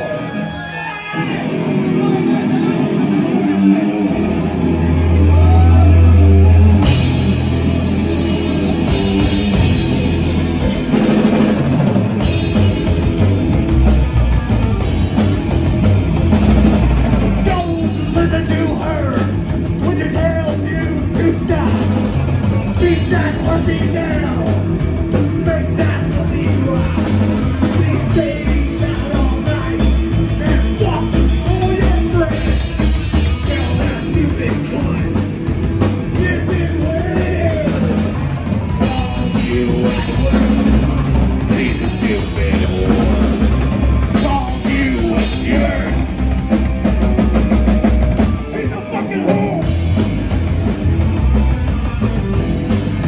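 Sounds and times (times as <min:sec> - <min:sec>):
live punk band playing: 0:00.0 - 0:53.0
man singing: 0:17.4 - 0:46.3, 0:48.3 - 0:50.0.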